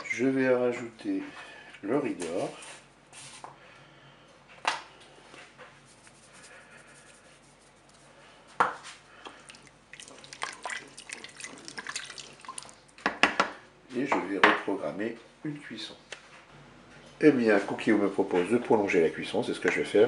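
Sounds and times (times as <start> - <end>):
wooden spoon stirring food: 8.8 - 13.2
liquid sloshing: 9.1 - 13.1.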